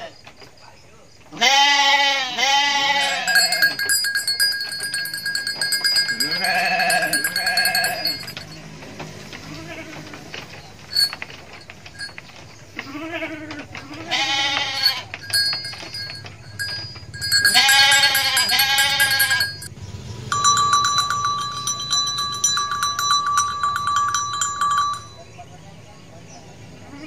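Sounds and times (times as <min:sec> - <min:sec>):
sheep bleating: 0:01.4 - 0:03.8, 0:06.0 - 0:08.4, 0:09.4 - 0:10.2, 0:12.8 - 0:15.3, 0:17.2 - 0:19.6
pulsing high ringing tone: 0:03.0 - 0:08.6, 0:10.9 - 0:12.2, 0:14.7 - 0:19.7, 0:20.3 - 0:25.4.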